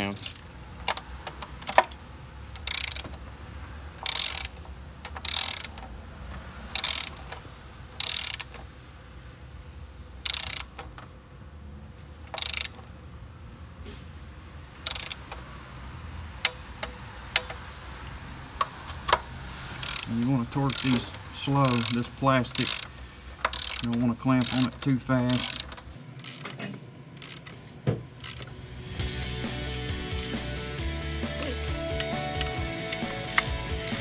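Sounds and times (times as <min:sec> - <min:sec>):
ratchet wrench clicking: 0:00.0 - 0:03.2, 0:04.0 - 0:05.9, 0:06.7 - 0:07.4, 0:08.0 - 0:08.6, 0:10.2 - 0:11.0, 0:12.2 - 0:12.9, 0:14.8 - 0:15.4, 0:16.4 - 0:17.6, 0:19.8 - 0:26.6, 0:27.2 - 0:27.6, 0:28.2 - 0:28.5, 0:30.1 - 0:30.5, 0:31.3 - 0:34.0.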